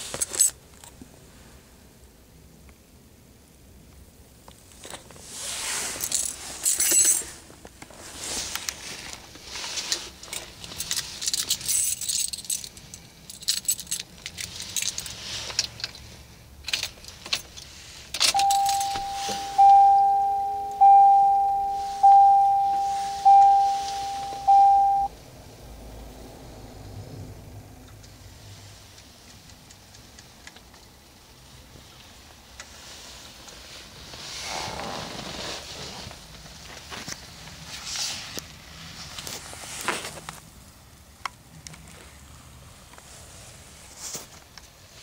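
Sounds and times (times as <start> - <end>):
keys jangling: 10.2 - 16.0, 16.6 - 19.6
car dashboard warning chime: 18.3 - 25.1.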